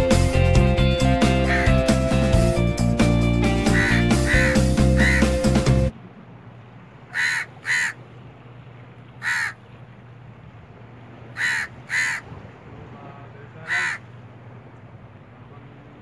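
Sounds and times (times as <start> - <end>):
crow cawing: 1.3 - 1.8, 3.6 - 5.4, 7.1 - 8.0, 9.2 - 9.6, 11.4 - 12.3, 13.6 - 14.1.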